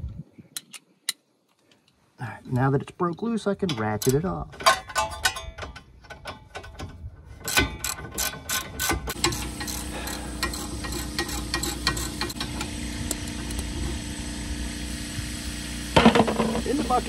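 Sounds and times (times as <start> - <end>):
hand ratchet clicking: 7.4 - 12.4
steady low hum: 9.1 - 17.0.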